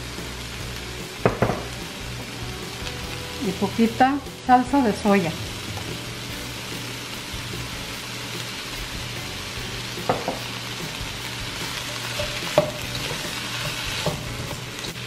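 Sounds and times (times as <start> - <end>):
vegetables sizzling in a wok: 0.0 - 15.0
spatula stirring vegetables: 5.4 - 15.0.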